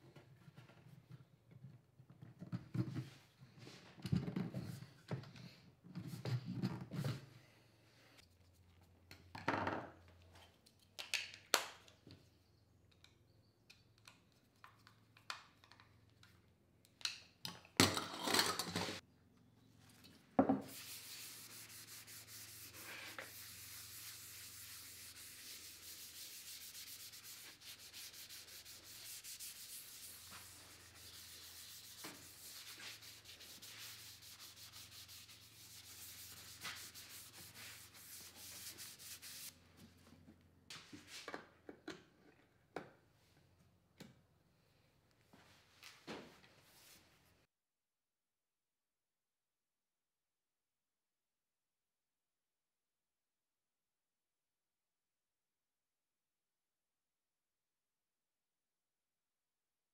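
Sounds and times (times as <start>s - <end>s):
gloved hand rubbing wood: 20.7s - 39.5s.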